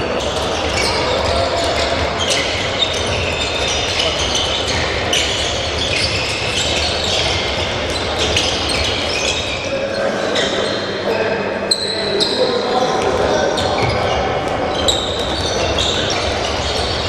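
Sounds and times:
sports shoes squeaking: 0.0 - 10.9, 11.7 - 17.0
handballs bouncing on floor: 13.8 - 17.0.

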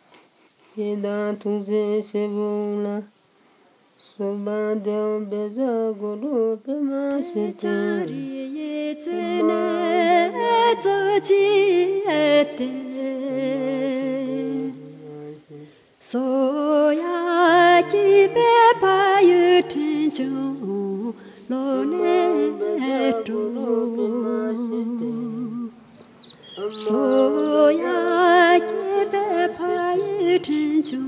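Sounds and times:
person singing unaccompanied: 0.7 - 3.2, 4.0 - 31.0
lower sustained voice: 19.5 - 31.0.

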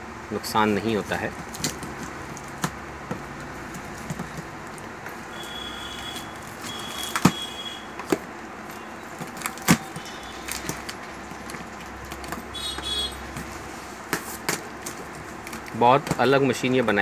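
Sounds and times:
packing tape squealing: 5.3 - 8.0, 8.7 - 13.2.

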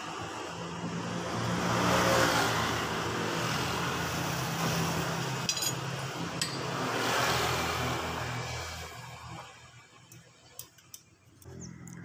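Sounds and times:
metal parts clinking: 5.5 - 5.9
steady engine hum: 11.3 - 12.0.

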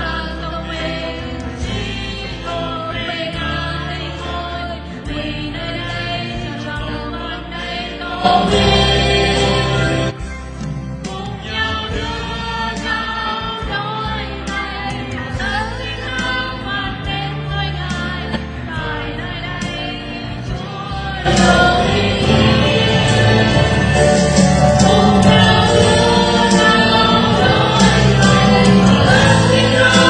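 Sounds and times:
voices singing worship song: 0.0 - 10.2, 11.0 - 30.0
band playing: 8.0 - 14.0, 18.0 - 30.0.

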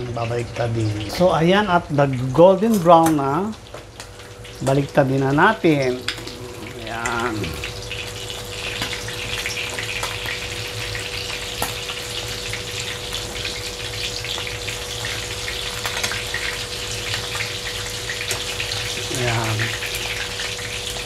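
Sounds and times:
oil sizzling in frying pan: 7.7 - 21.0.

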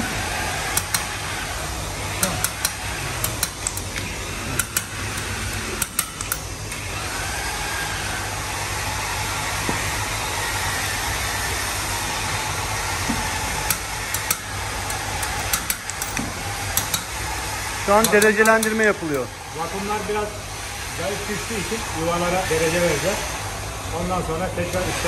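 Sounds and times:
tool clicking on metal: 0.6 - 1.5, 2.1 - 6.8, 13.1 - 17.3, 17.9 - 19.3.

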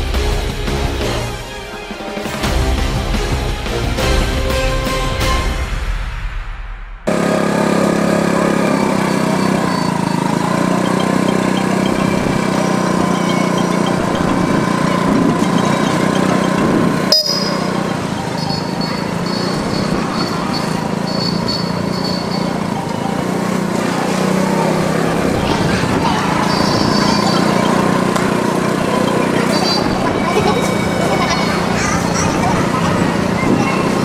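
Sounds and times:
mechanical hum: 7.1 - 34.0.

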